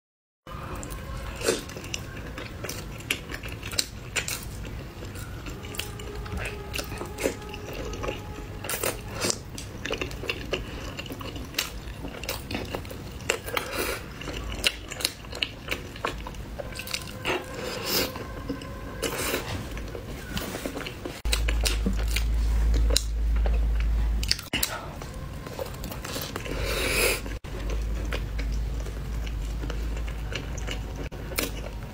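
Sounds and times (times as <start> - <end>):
close chewing and biting: 0.6 - 31.9
loud low rumble: 4.3 - 11.2, 15.8 - 31.0.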